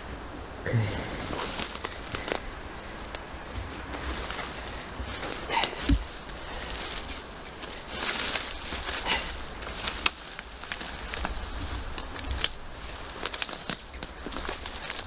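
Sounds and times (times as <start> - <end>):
person grunting: 0.6 - 1.4
twigs snapping underfoot: 1.3 - 15.0.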